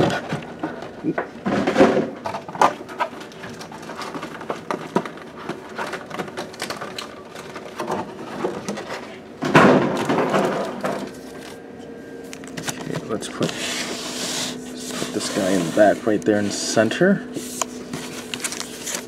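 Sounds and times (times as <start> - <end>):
packaging rustle: 17.5 - 19.0.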